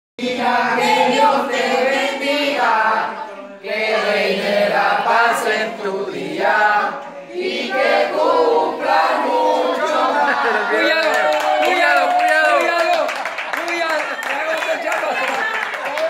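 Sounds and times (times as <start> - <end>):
people singing together: 0.2 - 11.0.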